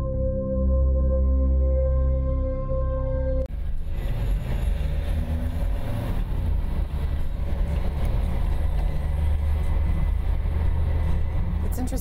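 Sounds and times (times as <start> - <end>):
car engine and tyres rumbling: 3.5 - 12.0.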